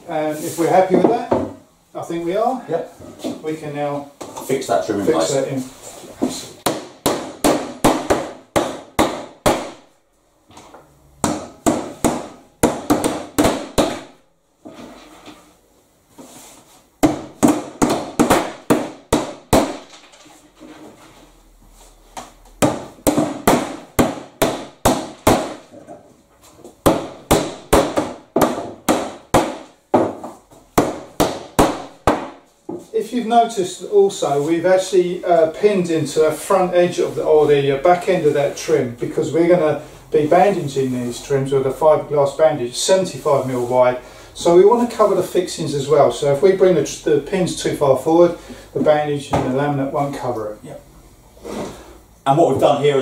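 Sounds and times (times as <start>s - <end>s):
hammer driving nails: 11.2s - 14.2s, 22.6s - 25.7s, 26.8s - 30.2s.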